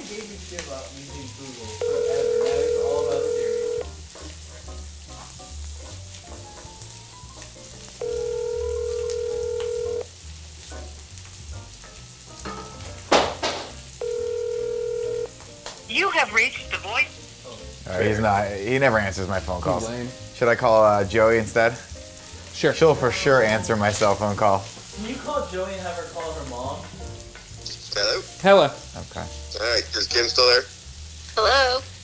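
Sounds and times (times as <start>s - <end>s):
food sizzling in a skillet: 0.0s - 32.0s
phone ringback tone: 1.8s - 4.0s, 8.0s - 10.1s, 14.0s - 15.3s
sharp knock: 13.1s - 13.8s.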